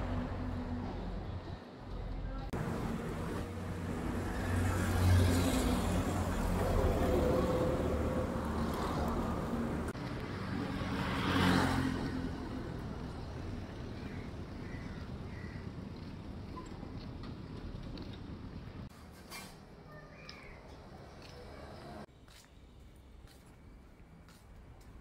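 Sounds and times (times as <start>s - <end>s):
traffic engine hum: 0.0s - 19.0s
vehicle passing loudly: 2.6s - 12.9s.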